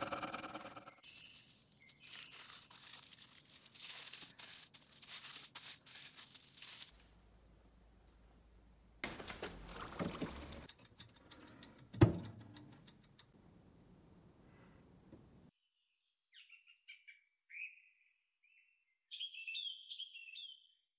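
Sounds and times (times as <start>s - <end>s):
bird chirps: 0.5s - 3.0s, 15.6s - 20.9s.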